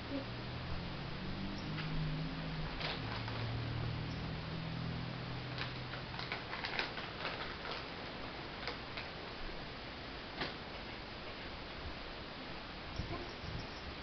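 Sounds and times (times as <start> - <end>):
steady background hiss: 0.0 - 14.0
plastic bag crinkling: 2.8 - 3.5, 5.6 - 8.0.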